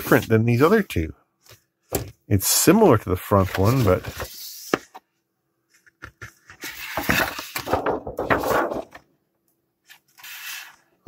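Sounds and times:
plastic sheet rustling and crinkling: 6.7 - 9.0.

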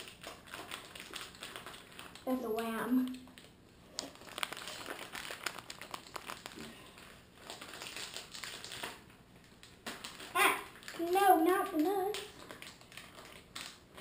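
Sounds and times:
plastic wrappers crinkling: 0.0 - 14.0.

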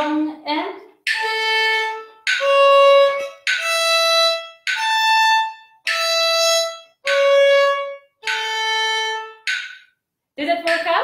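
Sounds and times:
violin bowed notes: 1.1 - 9.8.

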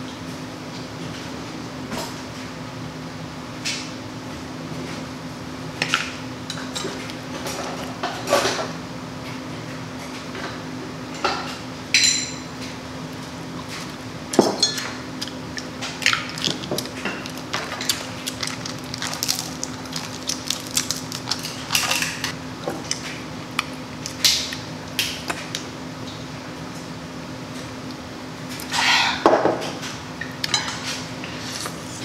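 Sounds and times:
dishes and utensils clinking: 14.4 - 15.0, 30.5 - 31.0
crab shell cracking: 15.2 - 22.1.

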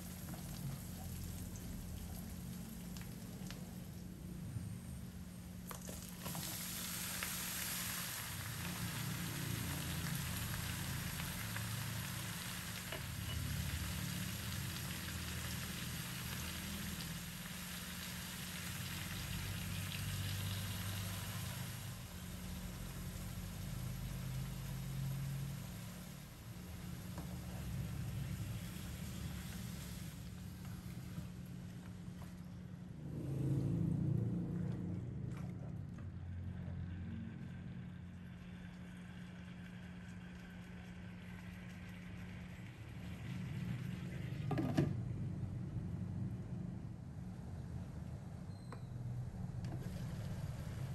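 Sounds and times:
meat sizzling in a wok: 5.8 - 31.3.

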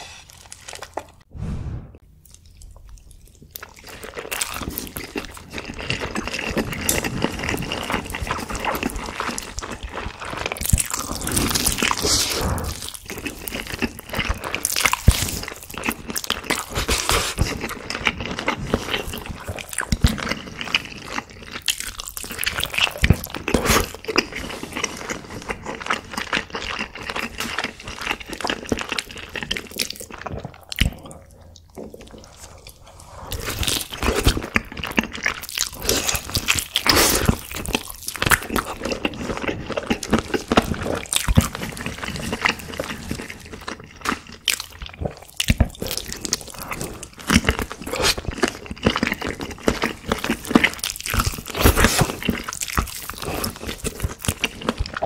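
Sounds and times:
noodles slurped and chewed: 2.2 - 55.0
wet crackly chewing: 2.2 - 55.0.

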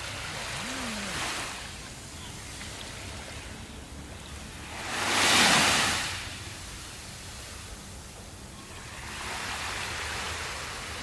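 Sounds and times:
waves washing up sand: 0.0 - 11.0.

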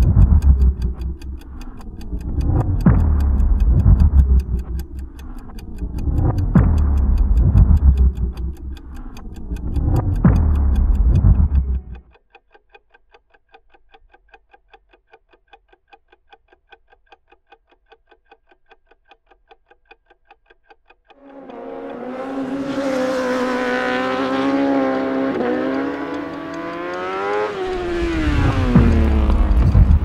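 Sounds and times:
motorcycle engine revving: 0.0 - 1.4, 2.3 - 5.3, 5.9 - 8.6, 9.5 - 12.0, 21.3 - 30.0
rapid clock-like ticking: 0.0 - 30.0.

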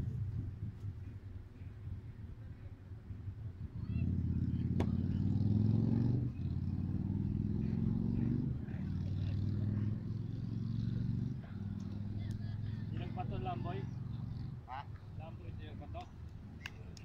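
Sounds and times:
vehicle engine accelerating: 3.6 - 15.8.

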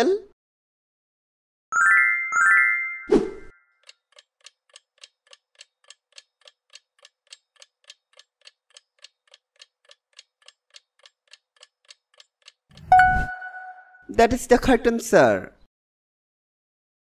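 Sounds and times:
clock ticking: 3.8 - 13.5.

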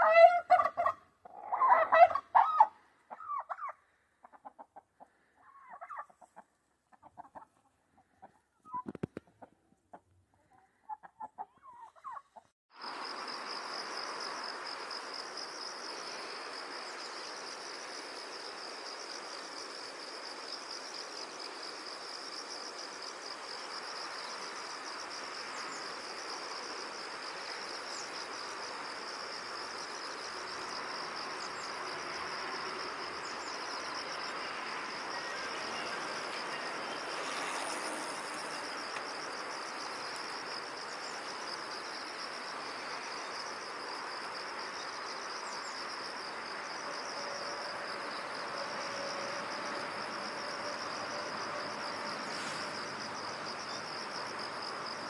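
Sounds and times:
chickens clucking: 0.0 - 12.5
even hiss: 12.8 - 47.0, 49.3 - 55.0
insect chorus trilling: 12.8 - 55.0.

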